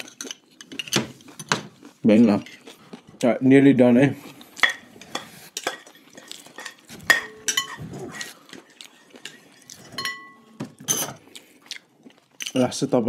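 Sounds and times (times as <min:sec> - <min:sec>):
spoon clinking on ceramic bowl: 0:06.6 - 0:07.8, 0:09.2 - 0:11.1.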